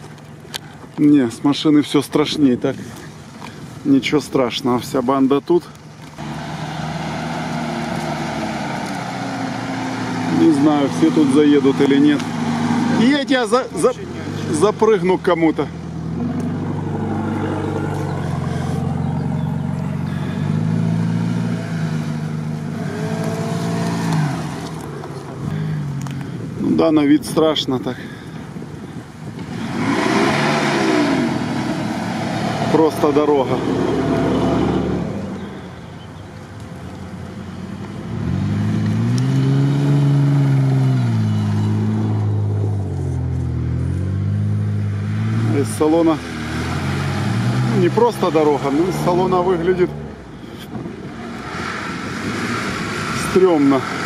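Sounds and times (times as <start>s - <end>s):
suv engine climbing at low revs: 5.9s - 27.4s, 28.1s - 54.0s.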